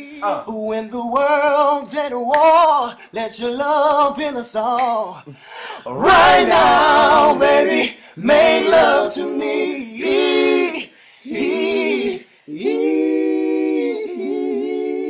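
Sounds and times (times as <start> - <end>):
person singing unaccompanied: 0.0 - 4.5, 6.0 - 13.0.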